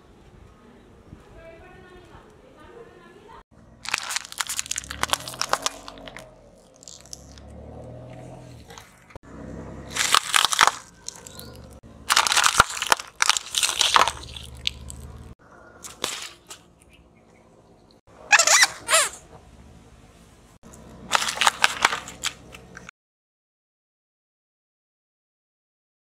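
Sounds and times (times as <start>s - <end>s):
tyre crushing wrapped sweets: 3.7s - 7.6s, 8.5s - 9.2s, 9.9s - 16.6s, 18.3s - 19.2s, 20.7s - 22.9s
low engine hum: 4.7s - 12.3s, 14.1s - 15.8s, 19.2s - 22.9s.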